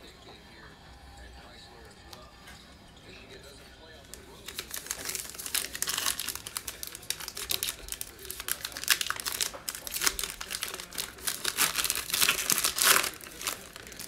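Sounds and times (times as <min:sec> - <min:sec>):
foil wrapper crinkling and tearing: 0:04.1 - 0:14.0.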